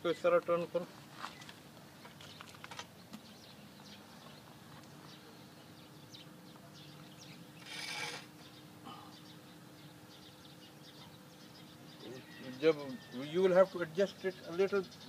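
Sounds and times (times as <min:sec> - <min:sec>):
metal scraping on concrete: 0:07.6 - 0:08.5.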